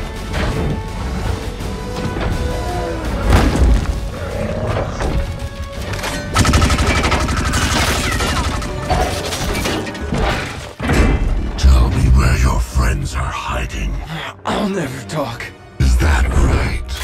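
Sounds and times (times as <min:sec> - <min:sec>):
action film music score: 0:00.0 - 0:17.0
rapid gunfire: 0:06.3 - 0:08.9.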